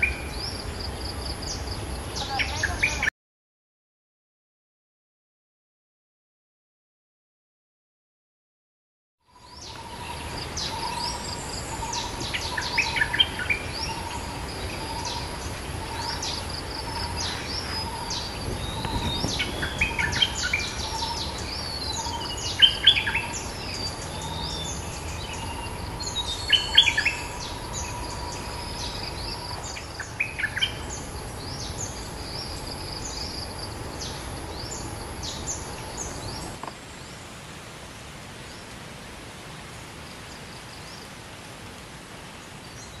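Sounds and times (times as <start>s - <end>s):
high insect hiss: 9.3s - 36.9s
bird calls with falling notes: 9.3s - 37.0s.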